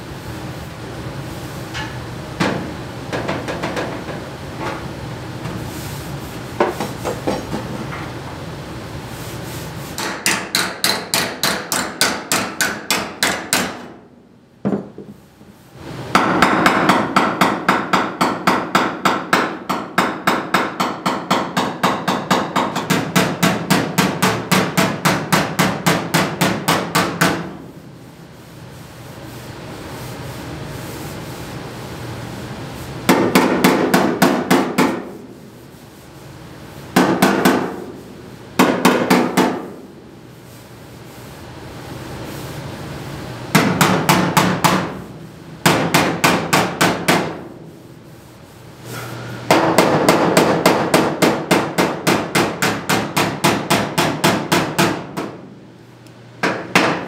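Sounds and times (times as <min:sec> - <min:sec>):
hammer striking sheet metal: 0:10.0 - 0:14.0, 0:16.1 - 0:27.6, 0:33.1 - 0:35.2, 0:36.9 - 0:38.0, 0:38.6 - 0:39.9, 0:43.5 - 0:47.5, 0:49.1 - 0:55.4, 0:56.4 - 0:57.0.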